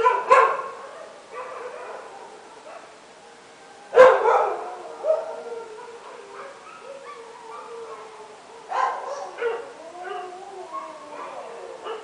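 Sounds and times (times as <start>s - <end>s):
dog barking: 0.0s - 2.1s, 4.0s - 5.3s, 8.7s - 9.7s.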